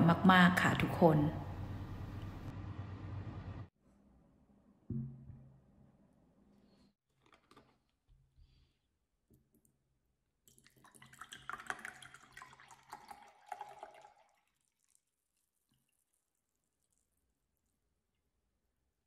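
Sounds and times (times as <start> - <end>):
juice pouring into glass: 10.5 - 17.8.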